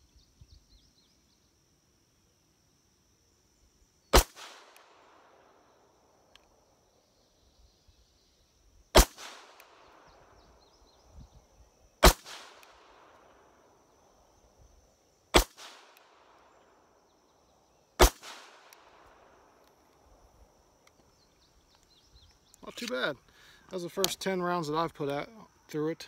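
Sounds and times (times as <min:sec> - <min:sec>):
pistol shots with echo: 0:04.2 - 0:05.4, 0:09.0 - 0:10.1, 0:12.0 - 0:13.1, 0:15.4 - 0:16.2, 0:18.0 - 0:19.0.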